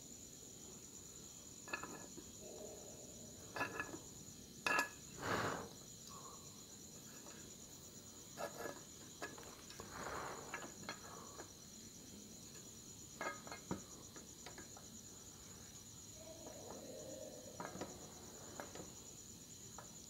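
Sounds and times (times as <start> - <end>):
crickets trilling: 0.0 - 20.0
brief hiss: 5.2 - 5.7.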